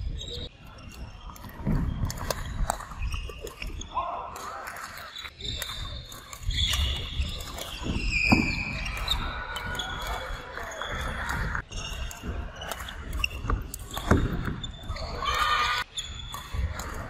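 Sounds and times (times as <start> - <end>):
shoe squeaks: 0.0 - 17.0
murmur of voices: 8.6 - 17.0
racket striking shuttlecock: 15.7 - 17.0.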